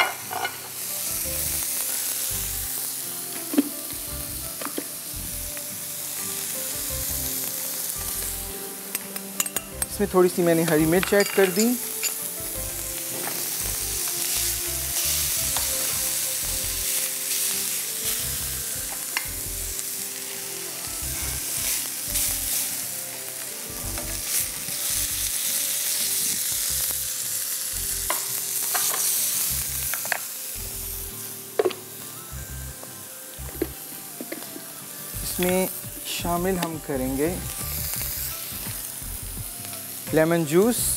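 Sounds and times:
food sizzling in a pan: 0.0s - 40.9s
utensil clinks: 10.7s - 12.2s.

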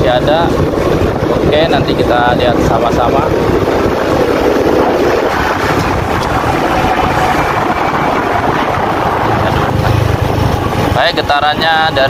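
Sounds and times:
motorcycle engine running: 0.0s - 12.0s
wind noise on microphone: 0.0s - 12.0s.

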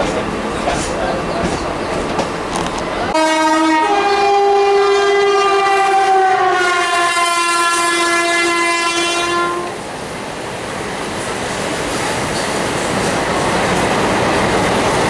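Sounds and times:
train coaches rumbling past: 0.0s - 15.0s
locomotive horn blast: 3.1s - 9.8s.

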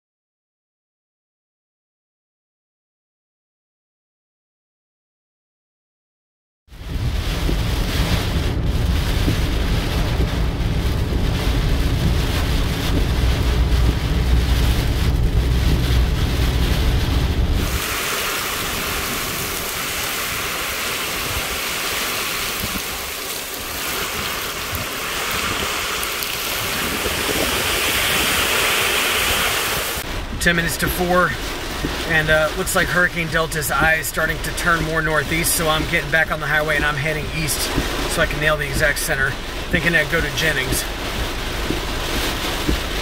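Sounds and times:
driven rain: 6.7s - 43.0s
wind: 6.7s - 43.0s
wind buffeting microphone: 6.8s - 36.0s.

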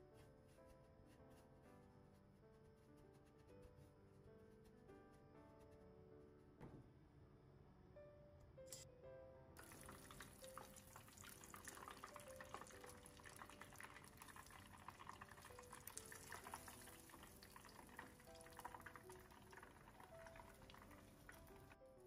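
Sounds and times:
soft background music: 0.0s - 22.0s
food sizzling in hot oil: 9.6s - 18.7s.

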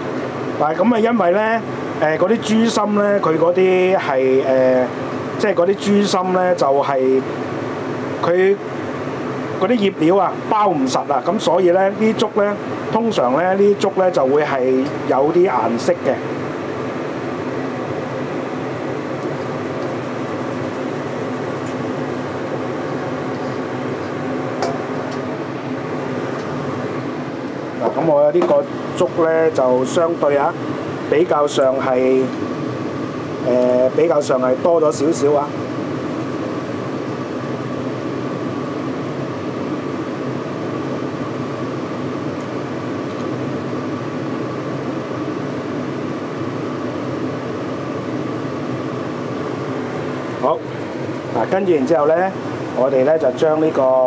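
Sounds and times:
fan whirring hum: 0.0s - 54.0s.

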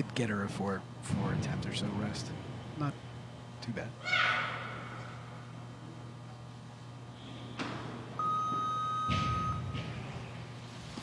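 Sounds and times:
electronic beep: 8.2s - 9.7s.

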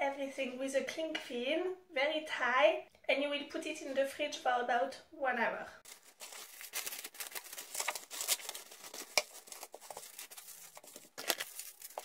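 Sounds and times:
plastic cling film crinkling: 5.8s - 12.0s.

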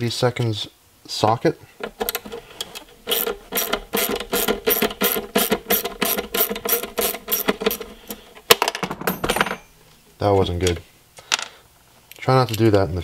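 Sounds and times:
ratchet wrench clicking: 3.1s - 7.9s.

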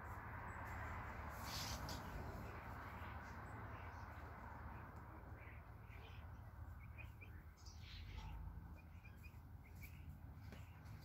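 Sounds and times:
faint bird chirps: 5.2s - 11.0s.

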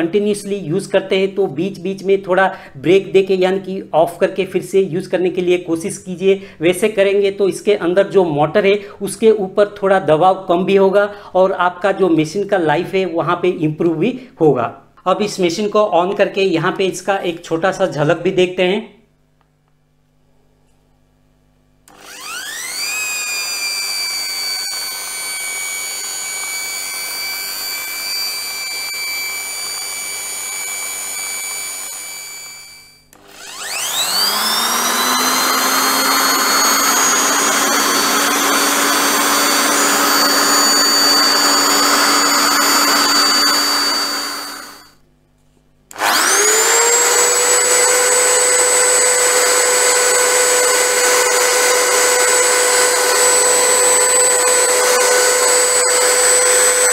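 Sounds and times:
electric drill motor whining: 21.9s - 45.0s, 45.9s - 56.9s.

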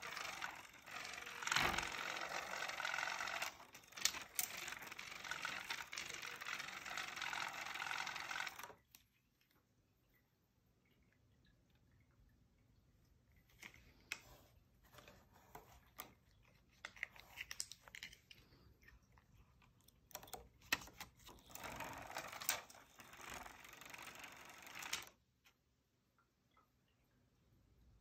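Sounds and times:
small motor whirring: 0.0s - 8.8s, 21.2s - 25.2s.

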